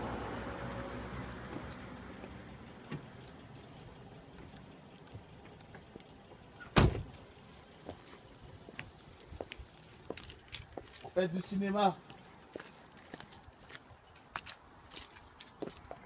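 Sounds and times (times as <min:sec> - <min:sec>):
keys jingling: 0:03.2 - 0:04.5, 0:09.2 - 0:11.2, 0:14.0 - 0:15.7
car door slamming: 0:06.6 - 0:07.2.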